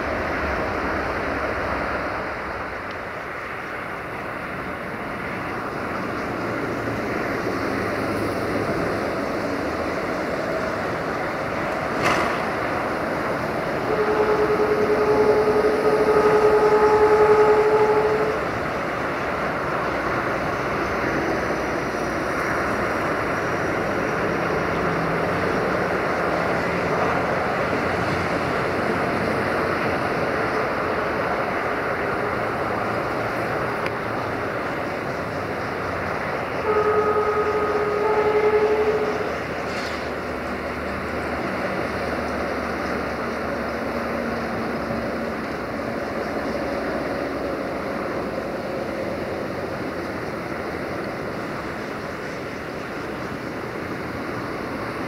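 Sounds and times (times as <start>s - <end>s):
noisy outdoor background: 0.0s - 55.0s
railway horn blast: 8.7s - 34.7s, 35.4s - 40.7s.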